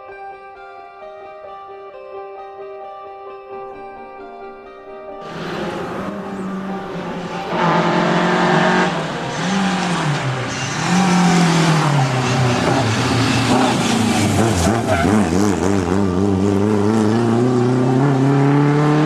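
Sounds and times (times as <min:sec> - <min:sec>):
rally car engine revving: 0:05.2 - 0:19.0.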